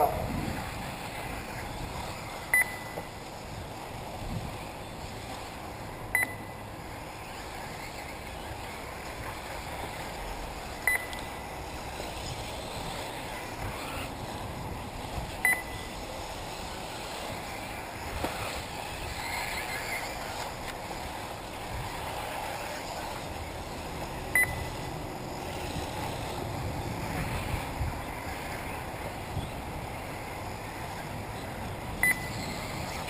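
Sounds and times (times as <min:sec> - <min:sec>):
rc buggies running: 0:00.0 - 0:33.0
steady rushing background: 0:00.0 - 0:33.0
short high beeps: 0:02.5 - 0:03.1, 0:06.1 - 0:06.6, 0:10.8 - 0:11.4, 0:15.4 - 0:15.9, 0:24.4 - 0:24.7, 0:32.0 - 0:32.4.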